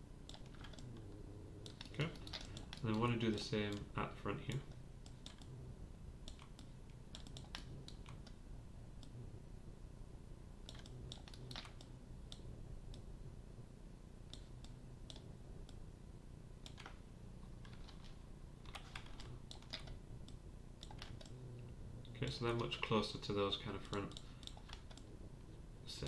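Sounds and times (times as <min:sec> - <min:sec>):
faint low hum: 0:00.0 - 0:26.0
keyboard keys clicking: 0:00.3 - 0:01.0, 0:01.7 - 0:03.9
mouse buttons clicking: 0:06.3 - 0:08.4.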